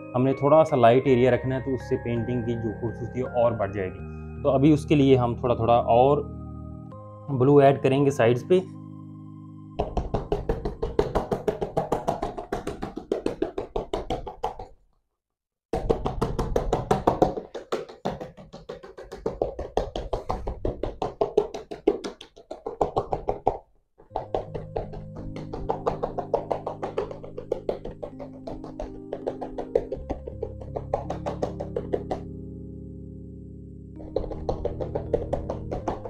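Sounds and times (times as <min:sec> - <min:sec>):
hand patting on canvas: 0:09.8 - 0:14.8, 0:15.7 - 0:32.3, 0:34.0 - 0:36.0.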